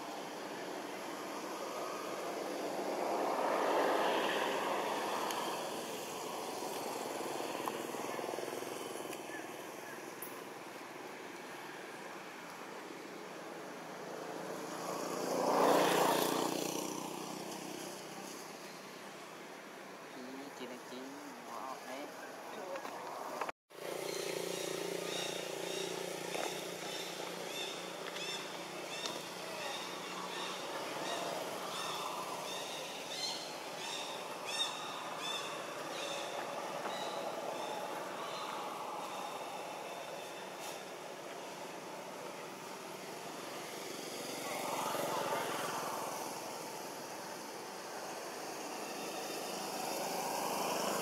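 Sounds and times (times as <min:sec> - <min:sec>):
passing engine: 0:00.0 - 0:10.6, 0:11.6 - 0:18.7, 0:20.1 - 0:51.0
outdoor background hiss: 0:00.0 - 0:51.0
bird chirping: 0:23.9 - 0:40.4.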